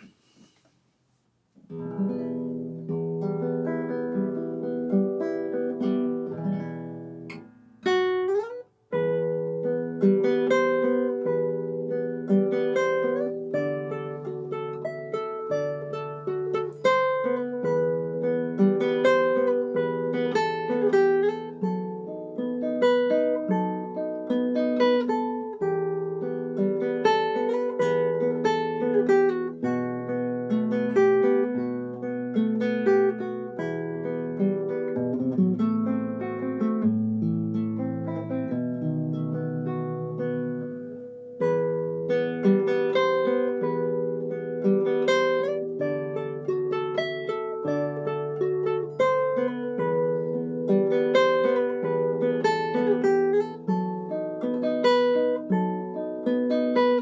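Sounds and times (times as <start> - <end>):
classical guitar fingerstyle: 0.0 - 57.0.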